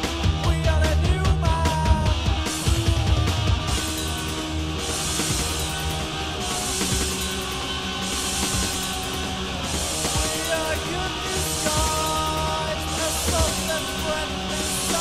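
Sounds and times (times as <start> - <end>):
heavy rock instrumental: 0.0 - 15.0
washes of high hiss: 3.8 - 15.0.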